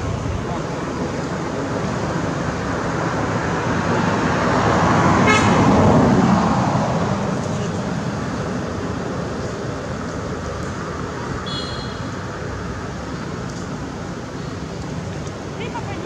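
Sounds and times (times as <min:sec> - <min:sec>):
vehicle passing by: 0:00.0 - 0:09.8
short horn toot: 0:11.5 - 0:12.0.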